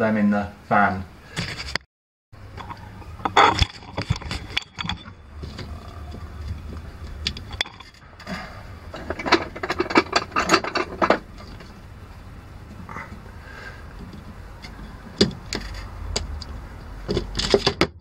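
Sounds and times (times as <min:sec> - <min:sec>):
low rumble: 0:02.4 - 0:17.4.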